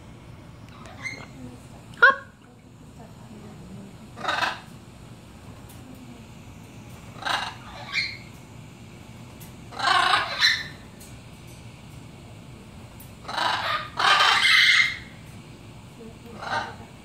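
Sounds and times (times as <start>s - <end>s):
parrot squawking: 0.7s - 1.4s, 2.0s - 2.4s, 4.1s - 4.7s, 7.1s - 8.3s, 9.7s - 11.0s, 13.2s - 15.2s, 16.4s - 16.9s.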